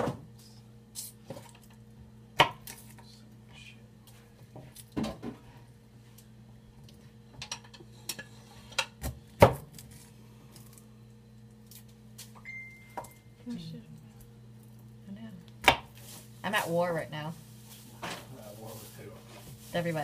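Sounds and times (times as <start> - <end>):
faint low hum: 9.6 - 20.0.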